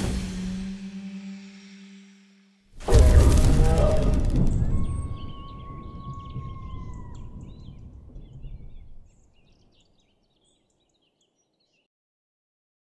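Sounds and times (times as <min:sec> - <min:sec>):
low rumble: 0:02.8 - 0:09.2
birds chirping: 0:02.9 - 0:11.9
whistle-like tone: 0:03.7 - 0:07.2.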